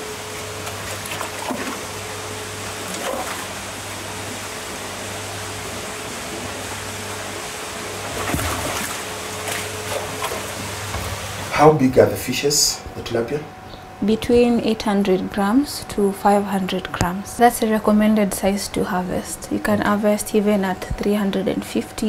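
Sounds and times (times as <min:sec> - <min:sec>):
water churning in a tank: 0:00.0 - 0:11.9
steady low hum: 0:00.0 - 0:22.0
net splashing in water: 0:00.3 - 0:10.9.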